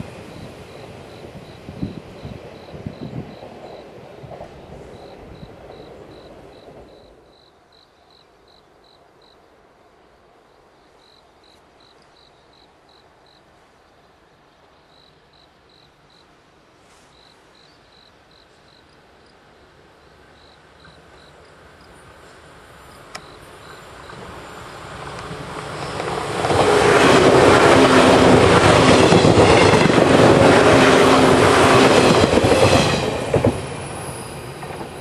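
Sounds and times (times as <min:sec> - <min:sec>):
train rumble: 0:00.0 - 0:07.4, 0:19.4 - 0:35.0
cricket chirping: 0:00.0 - 0:16.5, 0:17.1 - 0:26.5.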